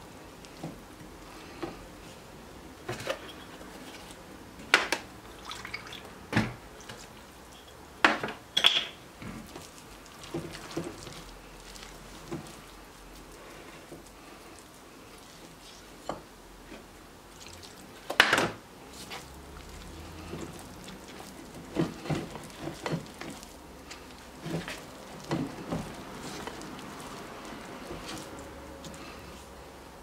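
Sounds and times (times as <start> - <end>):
whisk squelching thick dough: 9.3 - 18.2, 18.8 - 30.0.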